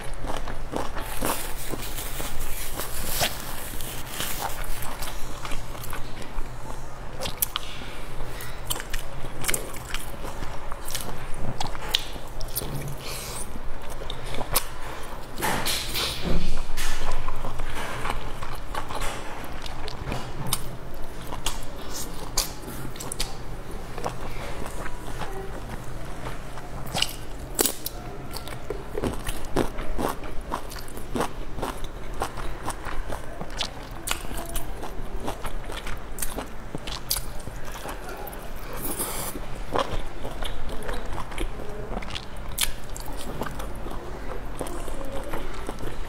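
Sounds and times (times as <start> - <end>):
chewing with wet mouth clicks: 7.2 - 14.8, 16.8 - 23.4, 24.0 - 46.0
person biting and chewing: 26.9 - 32.8.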